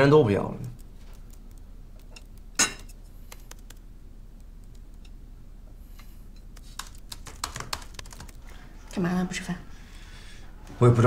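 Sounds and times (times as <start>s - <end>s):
faint room hum: 0.0s - 11.0s
laptop keyboard typing: 3.2s - 5.1s, 6.5s - 8.6s.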